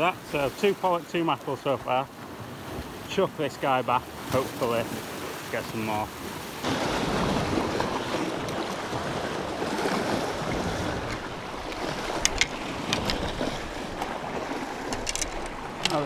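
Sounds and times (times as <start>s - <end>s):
surf washing against rocks: 0.0s - 16.0s
wind on microphone: 6.6s - 16.0s.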